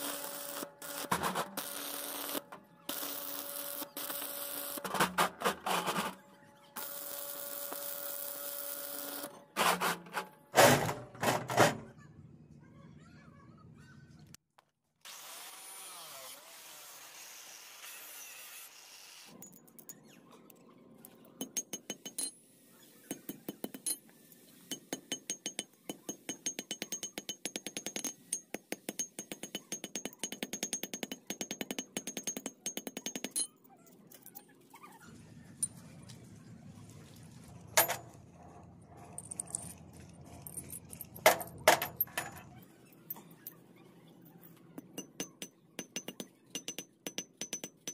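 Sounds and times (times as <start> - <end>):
hammer striking steel on anvil: 24.7 - 33.5, 44.8 - 47.9.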